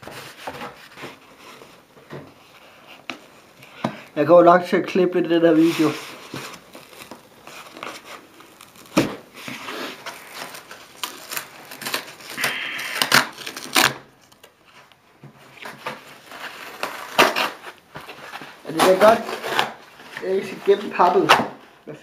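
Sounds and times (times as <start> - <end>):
cardboard box scraping and crinkling: 5.5 - 12.4, 15.9 - 21.3
cardboard tearing rip: 5.6 - 14.1, 16.2 - 21.6.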